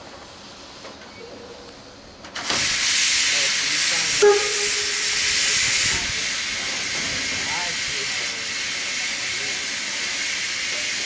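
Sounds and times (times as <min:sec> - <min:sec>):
steam locomotive venting steam: 0:02.3 - 0:11.0
brief pitched sound: 0:04.2 - 0:06.0.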